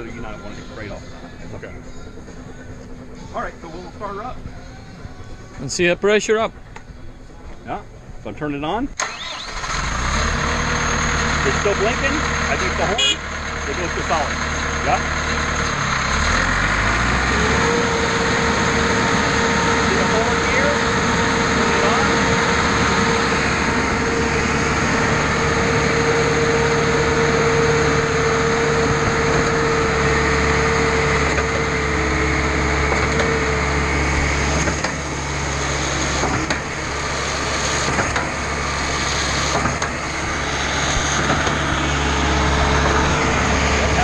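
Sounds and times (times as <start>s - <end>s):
engine hum: 0.0s - 44.0s
pump whine: 9.0s - 44.0s.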